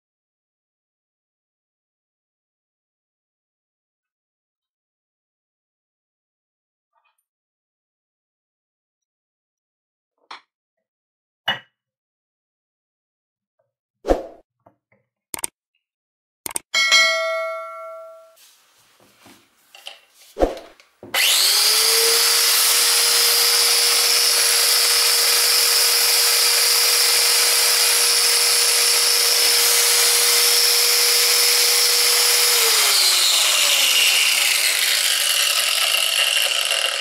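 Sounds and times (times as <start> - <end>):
angle grinder whining: 21.1 - 37.0.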